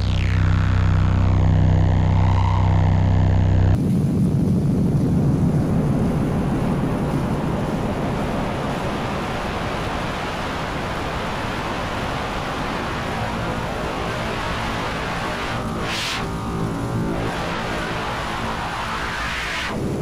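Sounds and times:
loud steady rush of noise: 0.0s - 20.0s
faint high-pitched whine: 5.7s - 20.0s.

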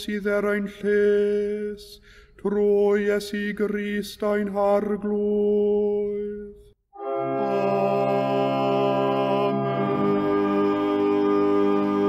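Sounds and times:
choir singing sustained chord: 7.0s - 12.0s.

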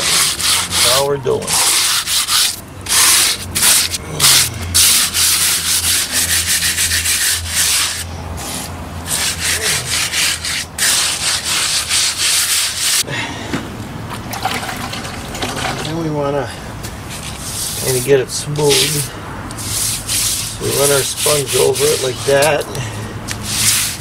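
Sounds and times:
gritty scraping of mortar: 0.0s - 13.1s, 17.1s - 22.8s.

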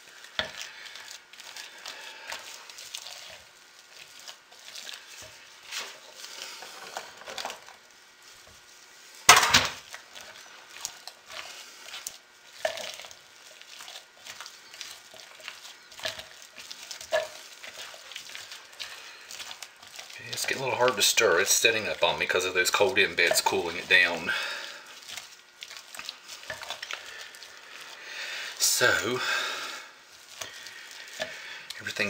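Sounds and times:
utensil scraping thick soap: 9.9s - 29.2s.

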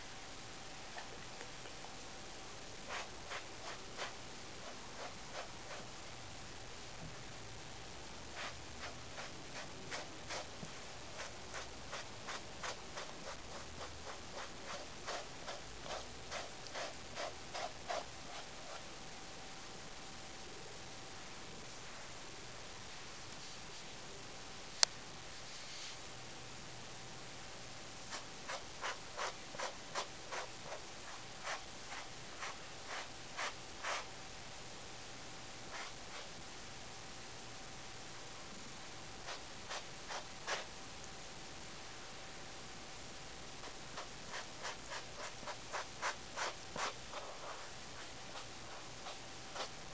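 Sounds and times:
brush stroking cat fur: 2.8s - 5.9s, 8.3s - 18.9s, 25.4s - 26.0s, 28.1s - 34.1s, 35.7s - 36.4s, 39.2s - 40.7s, 43.6s - 49.9s.

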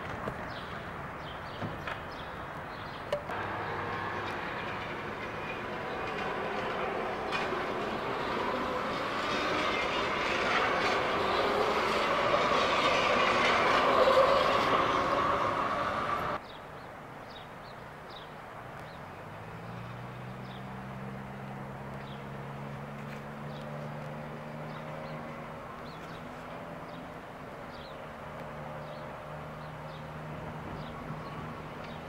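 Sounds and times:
light rail train running past: 3.3s - 16.4s
low steady train hum: 3.3s - 16.4s.

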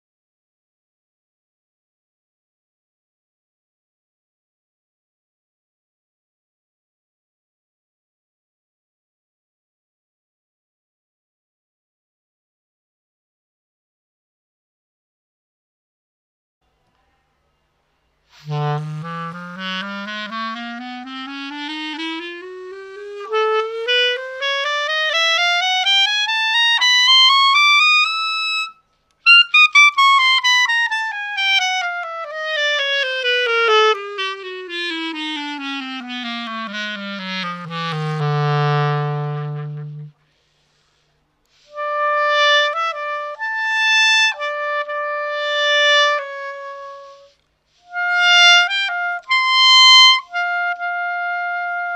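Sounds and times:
wooden clarinet playing: 18.3s - 40.2s, 41.5s - 51.9s.

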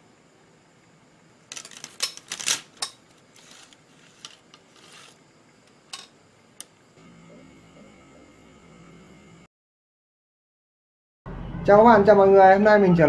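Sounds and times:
soft rustles: 3.4s - 5.2s.

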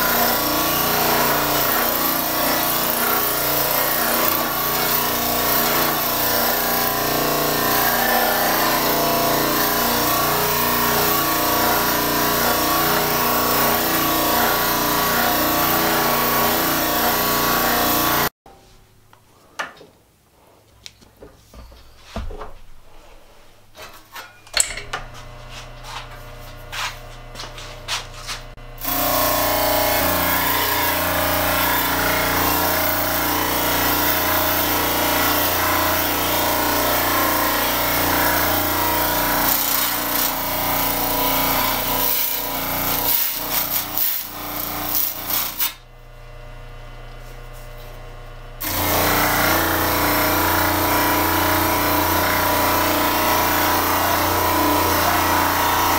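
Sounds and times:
electric motor humming: 24.9s - 55.9s.

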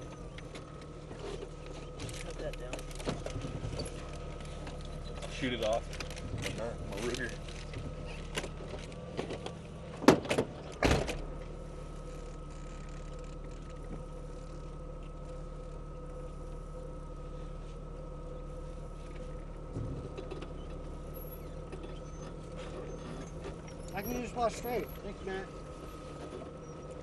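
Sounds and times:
thin steady whine: 0.0s - 27.0s
vehicle engine idling: 0.0s - 27.0s
vehicle door opening and shutting: 8.3s - 11.4s.

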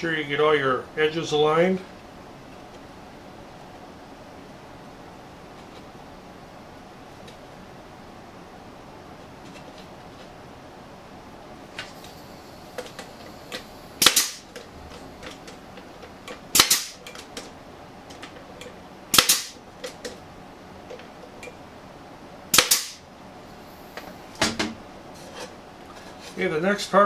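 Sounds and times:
pneumatic nailer shots: 14.0s - 14.6s, 16.5s - 17.0s, 19.1s - 19.6s, 22.5s - 23.0s.

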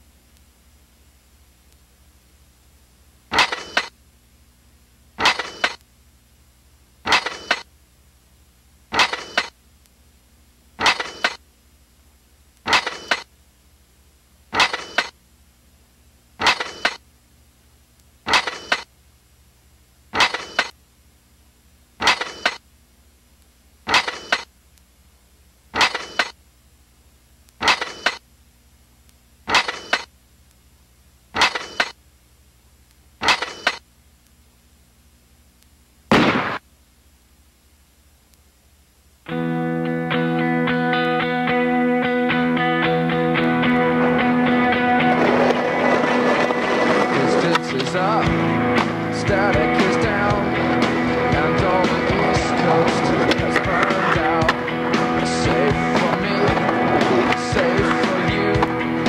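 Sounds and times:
faint steady hum: 0.0s - 59.0s
metallic clank with ring: 20.2s - 20.8s.

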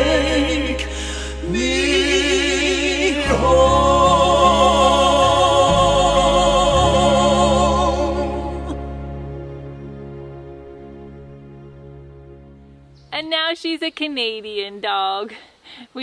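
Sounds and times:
person singing a ballad: 0.0s - 9.6s
sustained chords: 0.0s - 13.1s.

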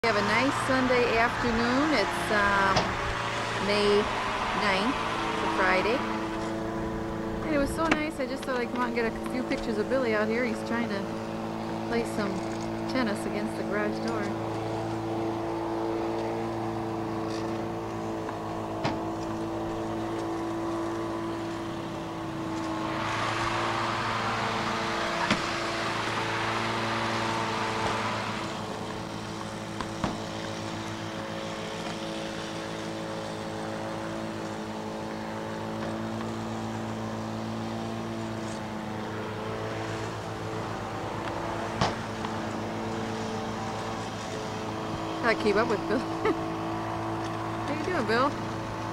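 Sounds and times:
lawn mower engine droning: 0.0s - 48.9s
broad rushing sound: 21.7s - 32.6s.

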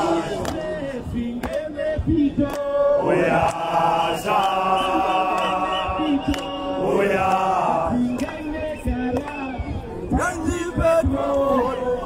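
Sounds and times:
crowd chanting: 0.0s - 12.0s.

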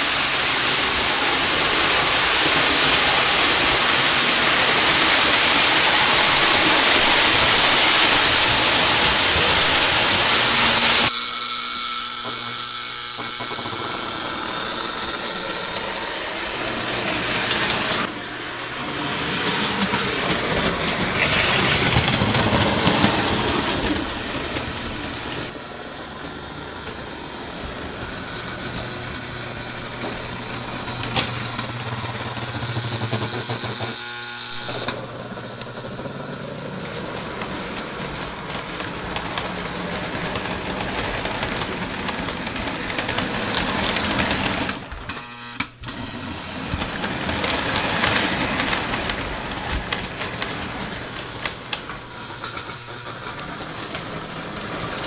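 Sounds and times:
loud steady hiss: 0.0s - 20.0s
electric motors humming: 0.0s - 55.0s
toy train wheels rumbling on track: 0.0s - 55.0s.

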